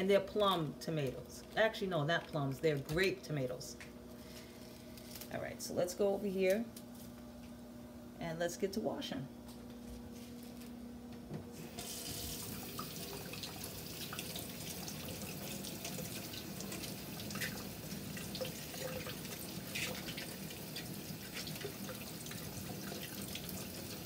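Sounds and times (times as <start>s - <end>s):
faucet running into steel sink: 11.8s - 24.0s.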